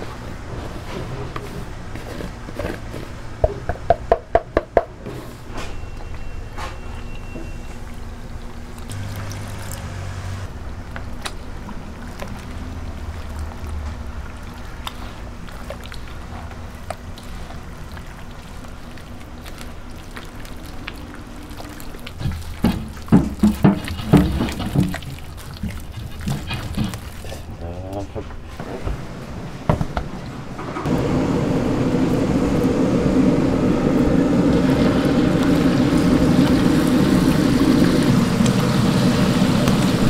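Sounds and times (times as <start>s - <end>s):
loud wet squelches: 7.6s - 28.1s
water trickling into bowl: 7.7s - 9.9s, 15.4s - 27.3s
steady low hum: 8.0s - 40.0s
hands squishing wet batter: 10.7s - 28.3s.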